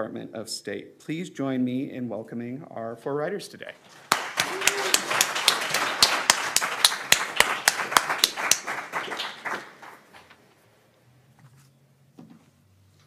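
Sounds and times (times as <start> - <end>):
audience applauding: 3.9 - 10.4.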